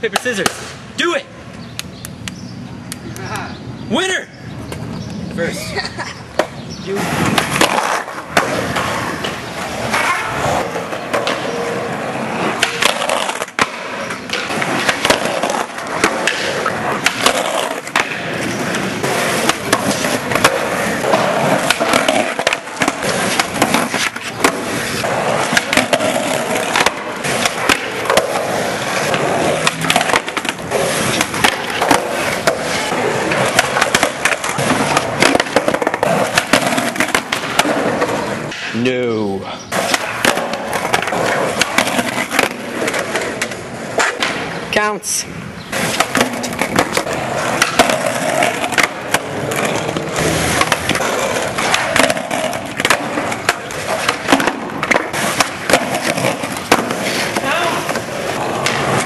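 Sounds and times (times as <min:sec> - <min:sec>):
skateboard wheels rolling on concrete: 0:00.0 - 0:59.0
skateboard pops and clacks: 0:00.1 - 0:00.8, 0:07.3 - 0:11.6, 0:12.5 - 0:38.8, 0:39.7 - 0:44.6, 0:45.7 - 0:59.0.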